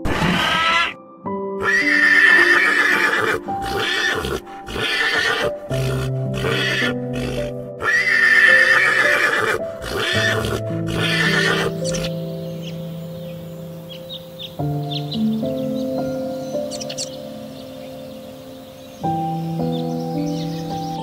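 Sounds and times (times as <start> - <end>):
horse whinnying: 0.0 - 1.0, 1.6 - 12.1
background music with held notes: 0.0 - 21.0.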